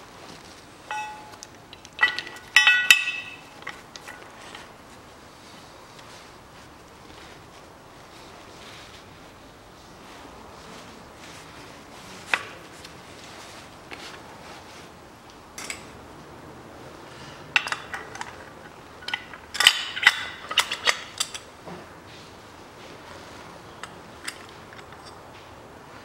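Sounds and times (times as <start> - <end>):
metal gearbox parts clinking: 0.9 - 4.7, 17.6 - 21.4.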